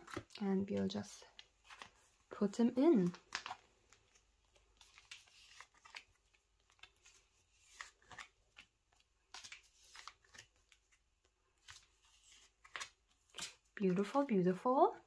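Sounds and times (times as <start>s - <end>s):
cards sliding into plastic pockets: 3.0s - 11.0s.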